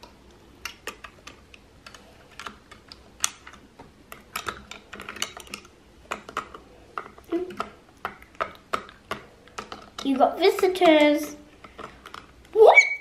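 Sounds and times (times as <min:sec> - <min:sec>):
plastic bricks clicking and clattering: 0:00.6 - 0:12.5.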